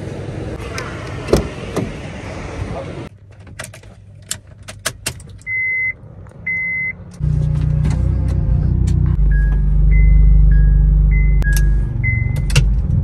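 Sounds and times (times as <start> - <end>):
car engine starting and humming: 0.0 - 13.0
high electronic car beeps: 5.5 - 7.0, 8.0 - 12.6.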